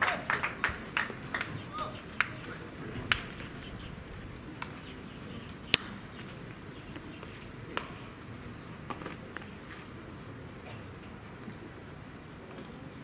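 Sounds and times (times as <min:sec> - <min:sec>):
ballpark ambience: 0:00.0 - 0:13.0
baseball impact crack: 0:05.6 - 0:06.3.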